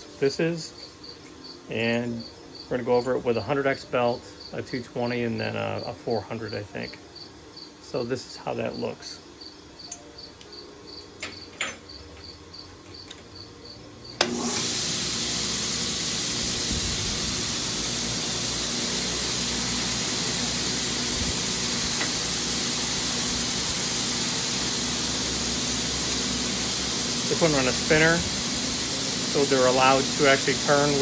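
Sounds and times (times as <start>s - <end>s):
crickets chirping: 0.0s - 14.2s
belt sander running: 14.2s - 31.0s.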